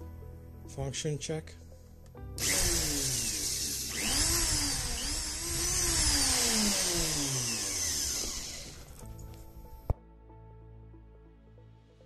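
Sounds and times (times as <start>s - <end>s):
electric motor running: 2.4s - 9.2s.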